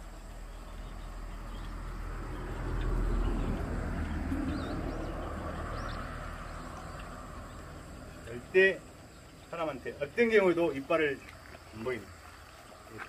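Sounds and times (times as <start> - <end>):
vehicle passing by: 0.3 - 10.0.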